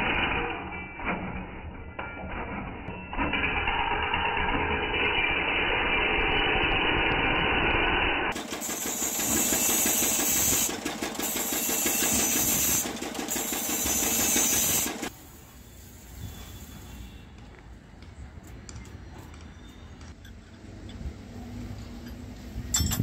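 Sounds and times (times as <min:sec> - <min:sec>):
grinding wheel motor drone: 0:02.0 - 0:15.2.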